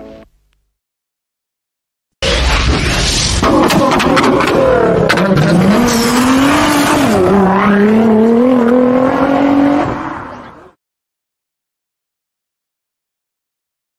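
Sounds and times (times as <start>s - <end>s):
car engine revving hard: 3.5s - 10.6s.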